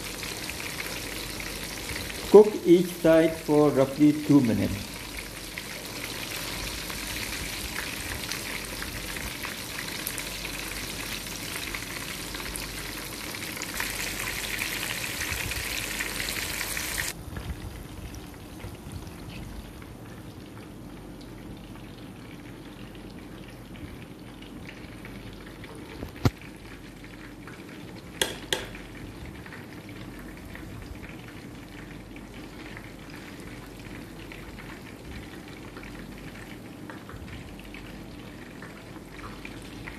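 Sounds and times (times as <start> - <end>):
fish sizzling in hot oil: 0.0 - 17.2.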